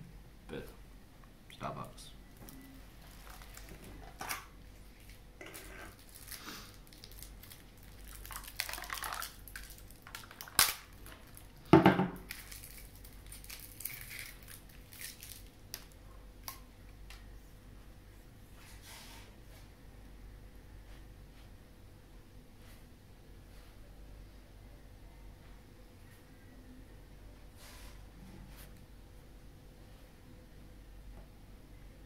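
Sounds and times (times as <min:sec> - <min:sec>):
plastic packaging crinkling: 0:02.4 - 0:16.0
knock with crackling: 0:11.7 - 0:12.3.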